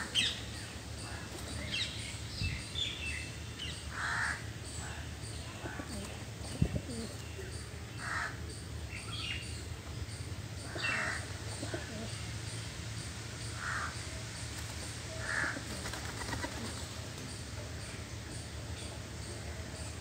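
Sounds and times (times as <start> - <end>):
low background hum: 0.0 - 20.0
crows cawing: 3.9 - 4.5, 8.0 - 8.4, 10.7 - 11.3, 13.6 - 14.0, 15.2 - 15.7.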